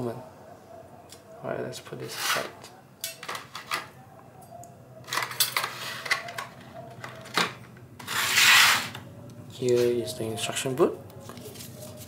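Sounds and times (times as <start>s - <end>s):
plastic crinkling rustle: 11.2s - 12.0s.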